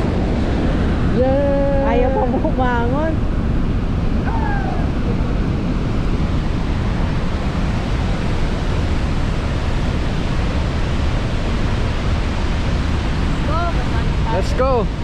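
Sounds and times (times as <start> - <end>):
wind on microphone: 0.0 - 15.0
waterfall rushing: 4.0 - 15.0.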